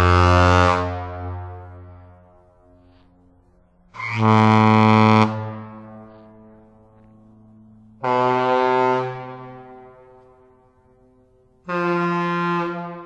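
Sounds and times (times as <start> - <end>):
ship air horn blasts: 0.0 - 13.0.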